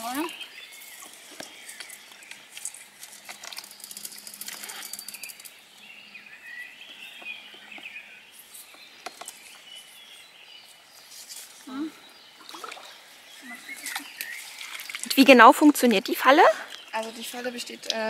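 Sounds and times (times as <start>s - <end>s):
water dripping: 0.0s - 5.6s, 12.4s - 18.0s
small bird chirping: 0.0s - 18.0s
rustling and clicking of trap: 1.7s - 5.6s.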